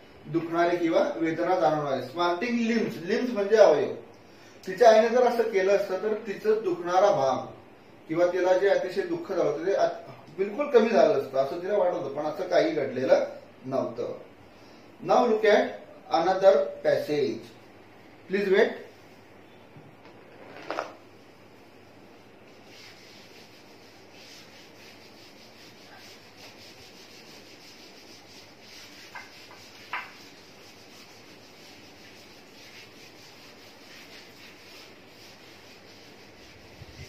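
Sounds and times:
scrubbing chalk off blackboard: 0:22.4 - 0:37.0.

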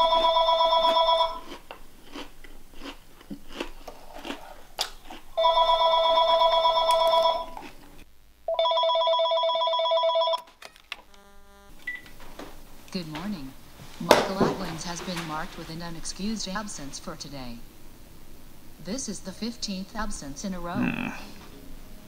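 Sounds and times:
two-tone telephone ring: 0:00.0 - 0:01.4, 0:05.4 - 0:07.6, 0:08.5 - 0:10.5
cereal crunching: 0:01.4 - 0:05.4, 0:07.5 - 0:08.0.

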